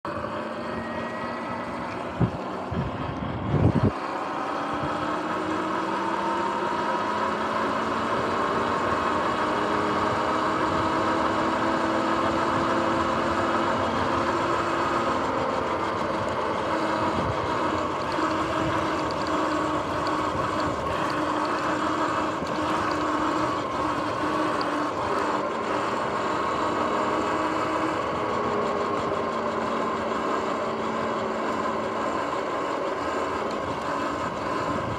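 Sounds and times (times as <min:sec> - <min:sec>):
electric motor whining: 0:00.1 - 0:34.9
tyre and wind noise: 0:01.5 - 0:04.0, 0:12.2 - 0:31.1, 0:31.7 - 0:34.9.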